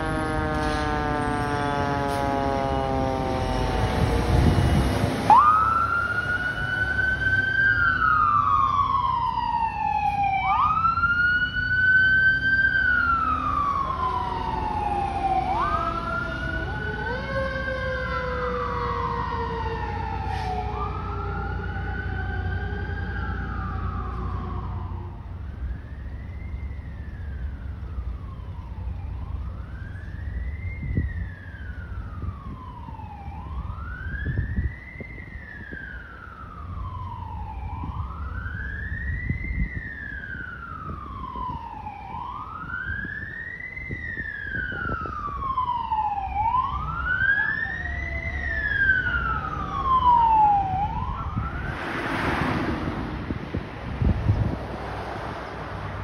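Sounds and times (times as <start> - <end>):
fire engine siren wailing: 0.0 - 56.0
low rumble of traffic: 0.0 - 56.0
short rush of noise: 51.5 - 53.8.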